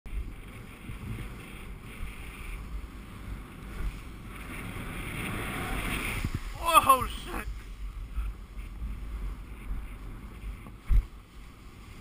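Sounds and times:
wind rumbling on microphone: 0:00.1 - 0:12.0.

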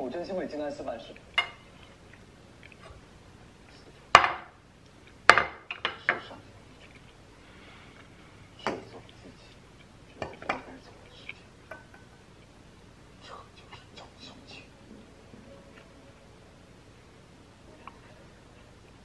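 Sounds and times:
dishes clinking on stone table: 0:11.7 - 0:12.2.

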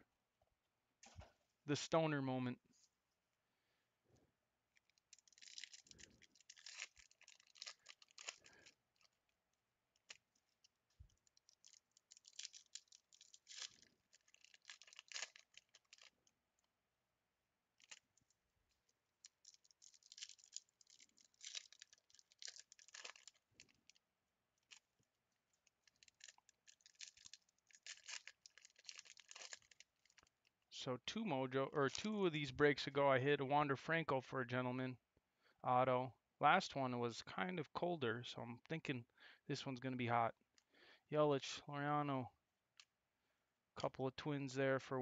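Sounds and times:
wrappers torn and crinkled: 0:04.9 - 0:09.2, 0:10.0 - 0:16.3, 0:17.8 - 0:18.2, 0:19.2 - 0:24.0, 0:25.6 - 0:30.5.

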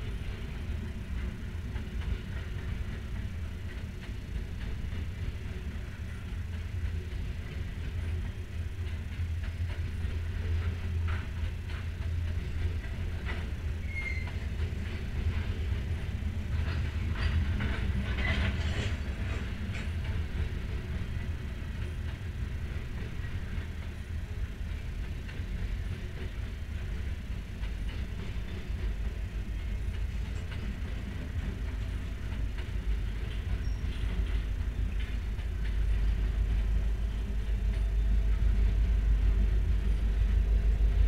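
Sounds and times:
train cars clanking: 0:00.0 - 0:41.0
train wheels rumbling on rail: 0:00.0 - 0:41.0
wheel squeaks: 0:13.8 - 0:14.4, 0:33.6 - 0:34.1.

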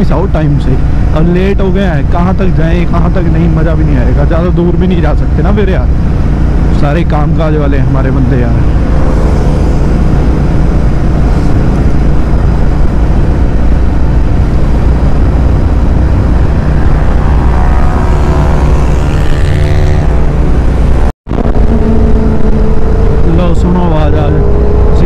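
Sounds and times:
motorcycle engine running: 0:00.0 - 0:25.0
wind rush on microphone: 0:08.4 - 0:25.0.

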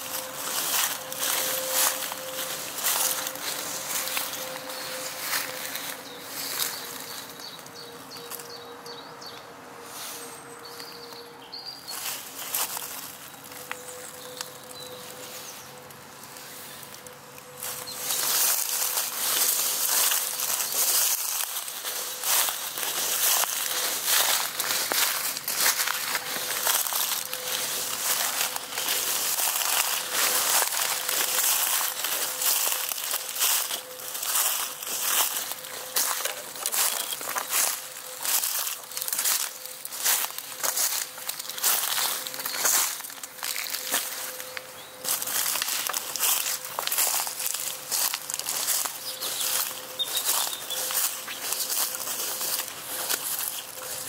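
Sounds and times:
footsteps through ground cover: 0:00.0 - 0:54.0
small bird chirping: 0:48.5 - 0:53.9.

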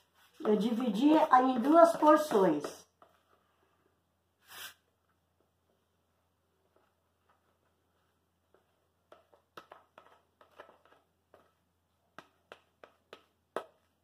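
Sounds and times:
spoon scraping plastic tub: 0:09.2 - 0:11.6.

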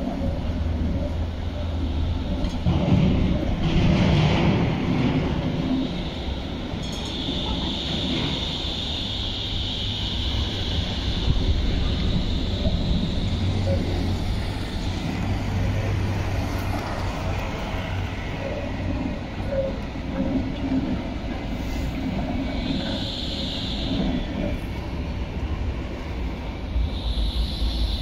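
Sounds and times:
tram wheels rumbling on rails: 0:00.0 - 0:28.0
high hiss: 0:26.8 - 0:28.0.

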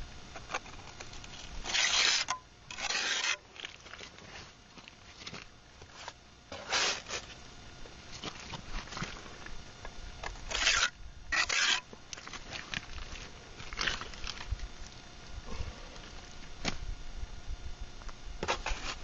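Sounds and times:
trowel scraping mortar on block: 0:01.6 - 0:03.5, 0:06.5 - 0:07.3, 0:10.5 - 0:11.9.

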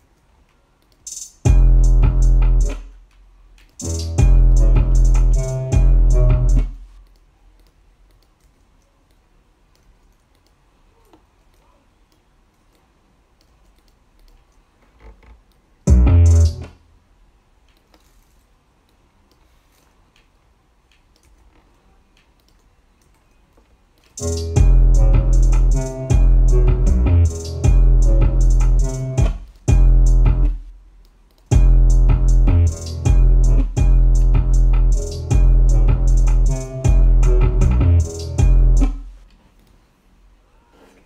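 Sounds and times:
trap beat with heavy bass: 0:01.1 - 0:02.9, 0:03.8 - 0:06.8, 0:15.9 - 0:16.7, 0:24.2 - 0:30.7, 0:31.5 - 0:39.2
faint mouse clicks: 0:07.0 - 0:15.6, 0:17.6 - 0:24.2.

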